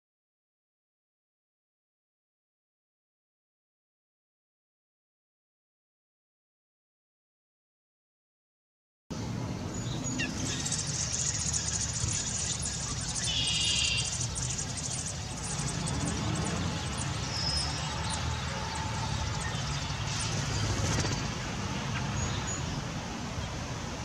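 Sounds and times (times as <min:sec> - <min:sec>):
low outdoor rumble: 0:09.1 - 0:24.0
birds chirping: 0:09.2 - 0:24.0
clear bird call: 0:10.1 - 0:20.3.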